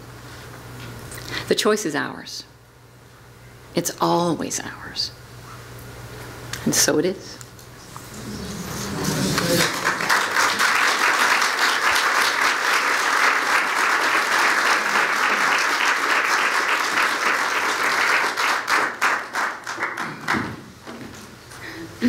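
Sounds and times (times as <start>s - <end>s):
audience clapping: 8.8s - 20.7s.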